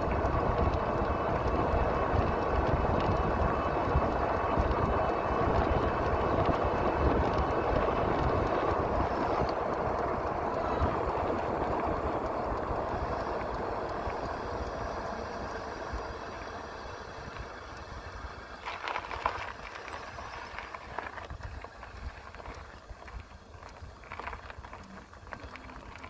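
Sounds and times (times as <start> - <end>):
wind rush on microphone: 0.0 - 15.1
bike tyre noise on road: 0.0 - 26.0.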